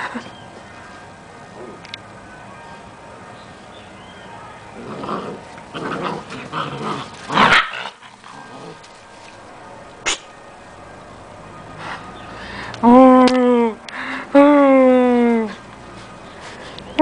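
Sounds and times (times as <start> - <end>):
puppies growling: 4.8 - 9.0.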